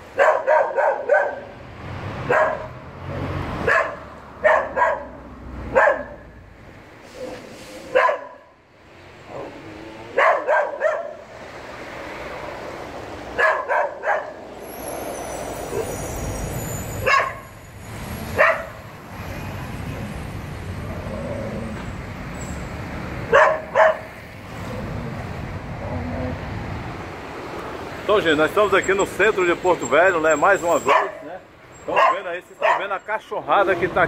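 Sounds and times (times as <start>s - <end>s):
street traffic: 0.0s - 34.0s
dogs barking: 0.1s - 1.6s, 2.2s - 2.8s, 3.6s - 6.3s, 7.2s - 8.5s, 9.3s - 11.2s, 13.3s - 14.4s, 17.0s - 17.4s, 18.3s - 18.8s, 23.2s - 24.2s, 30.8s - 31.3s, 31.9s - 33.0s
thin high squeal: 14.6s - 18.0s.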